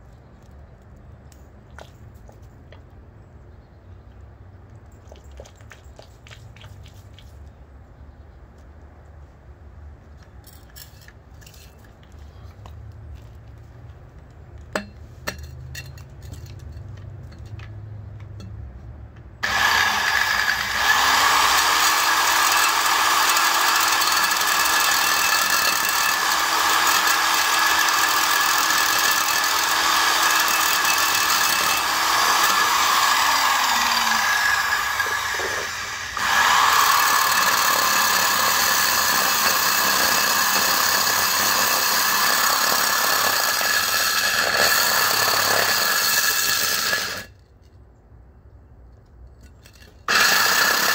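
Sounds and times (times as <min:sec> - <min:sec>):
angle grinder drilling concrete: 0:19.4 - 0:47.3, 0:50.1 - 0:50.9.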